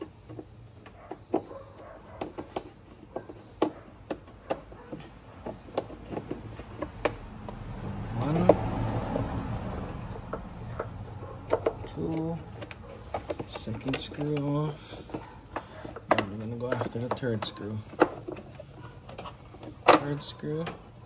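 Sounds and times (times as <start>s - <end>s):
vehicle engine rising in pitch: 7.2s - 12.4s.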